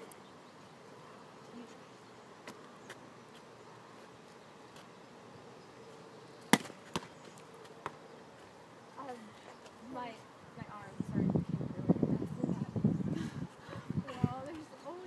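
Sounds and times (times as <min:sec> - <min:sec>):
ball caught thump: 0:06.5 - 0:07.1.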